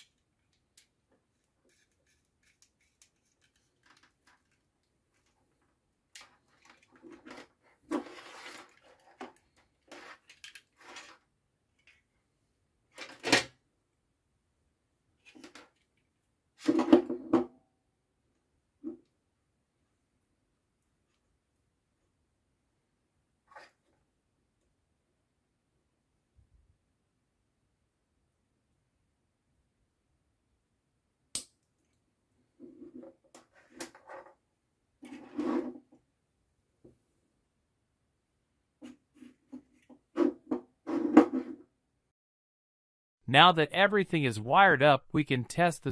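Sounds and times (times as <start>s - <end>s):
parts knocking and rubbing on desk: 38.8s - 41.7s.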